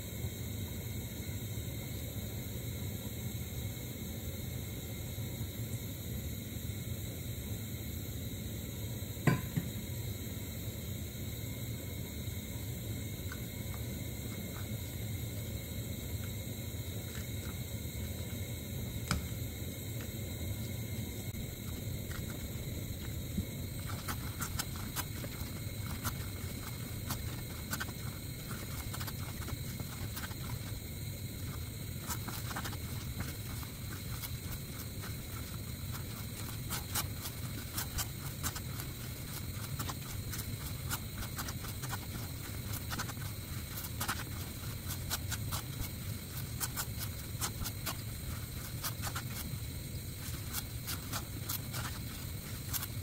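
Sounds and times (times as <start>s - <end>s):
steady low hum: 0.0s - 53.0s
spatula scraping sticky mixture: 21.4s - 53.0s.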